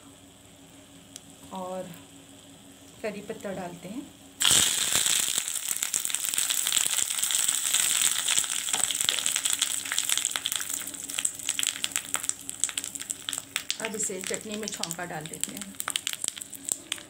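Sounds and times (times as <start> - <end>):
leaves sizzling in hot oil: 4.4 - 17.0
sharp crackles and pops: 4.4 - 17.0.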